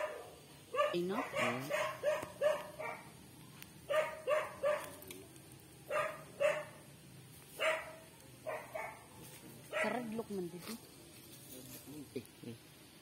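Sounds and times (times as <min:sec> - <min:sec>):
dog barking: 0:00.0 - 0:03.2, 0:03.9 - 0:05.0, 0:05.9 - 0:06.8, 0:07.5 - 0:10.2.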